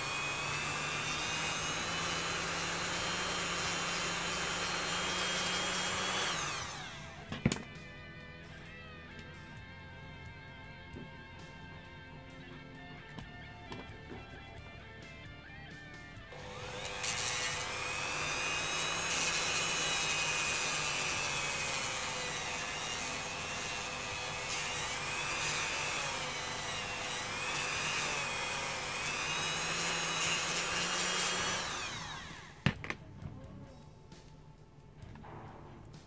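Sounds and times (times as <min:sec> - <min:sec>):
motor winding down: 0:00.0 - 0:07.2, 0:16.3 - 0:32.6
rotary tool grinding: 0:00.0 - 0:07.3, 0:16.3 - 0:32.6.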